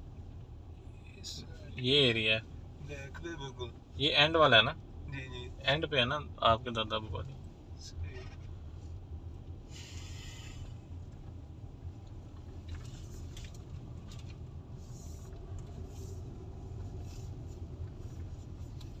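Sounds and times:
engine and tyre rumble: 0.0 - 19.0
short hiss: 9.7 - 10.8.

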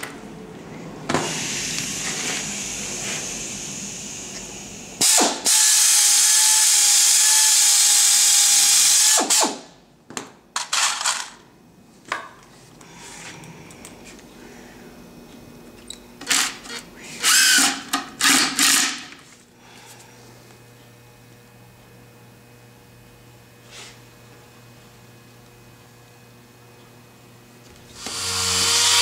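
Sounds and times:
air drill whining: 1.1 - 4.4, 5.0 - 9.7, 16.2 - 19.2, 27.9 - 29.0
impact driver driving screws: 5.0 - 9.6, 17.2 - 19.1.

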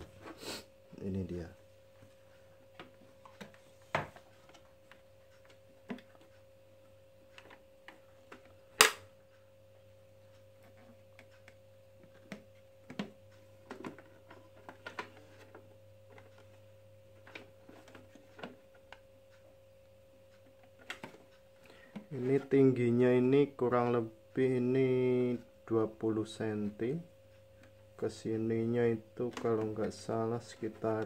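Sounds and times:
sharp plastic clack: 8.8 - 9.1.

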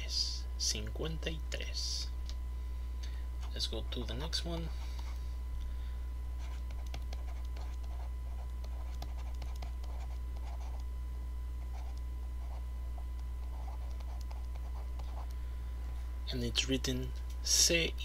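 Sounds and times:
steady low hum: 0.0 - 18.0
pen scratching handwriting: 6.4 - 10.8, 13.4 - 15.2.

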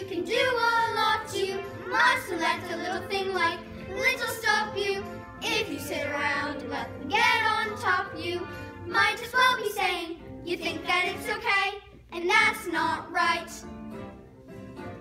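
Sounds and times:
children singing together: 0.0 - 11.8.

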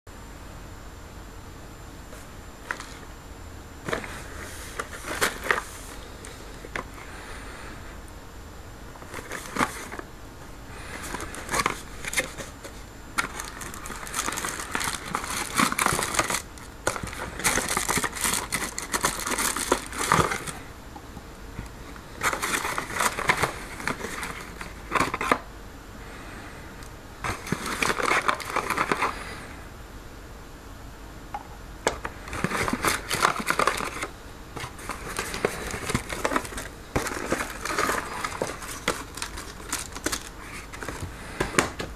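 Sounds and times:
cardboard and packaging rustling: 2.1 - 3.1, 3.8 - 7.2, 9.0 - 10.1, 10.7 - 20.7, 21.6 - 25.5, 27.2 - 29.2, 31.8 - 41.9.

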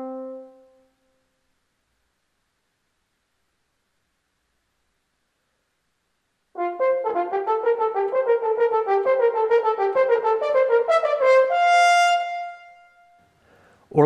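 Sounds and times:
french horn hunting-call notes: 0.0 - 0.8, 6.6 - 13.3.

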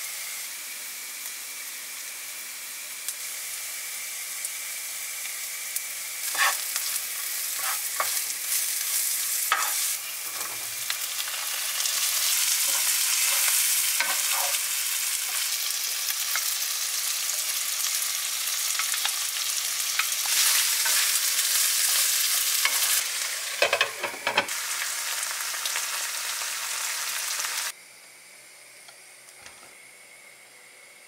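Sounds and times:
food sizzling in a frying pan: 0.0 - 27.8
utensil scraping a pan: 6.3 - 6.8, 7.4 - 10.8, 11.8 - 14.6.

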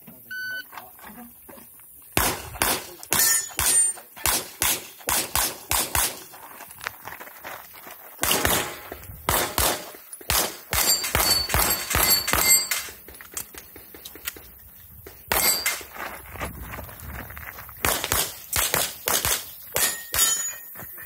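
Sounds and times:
handgun shots: 2.2 - 6.2, 8.2 - 12.9, 17.8 - 20.4
steel targets ringing: 3.1 - 4.1, 10.7 - 12.9, 15.3 - 15.9, 19.7 - 20.8.

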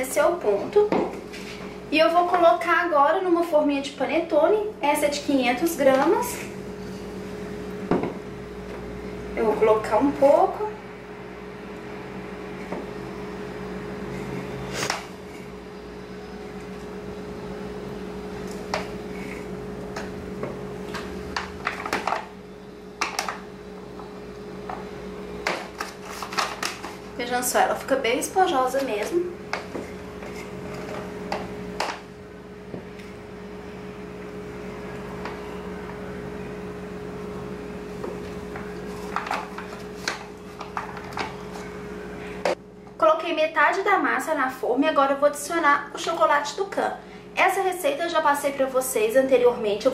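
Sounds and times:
electrical hum: 0.0 - 49.9
spatula scraping paper: 25.8 - 27.1, 29.8 - 31.0.

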